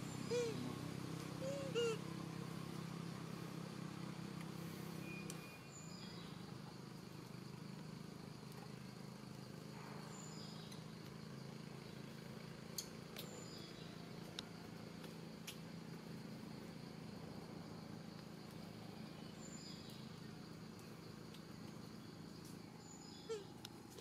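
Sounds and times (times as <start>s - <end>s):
small ticks: 4.3s - 4.6s, 5.2s - 5.5s, 10.6s - 11.2s, 12.7s - 16.7s, 18.1s - 18.7s, 19.7s - 22.6s, 23.6s - 24.0s
faint high chirps: 4.9s - 6.6s.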